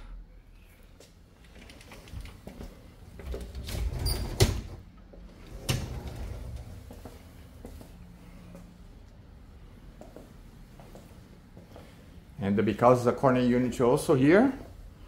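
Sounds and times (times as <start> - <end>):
sliding door rumbling on track: 3.3 - 7.0.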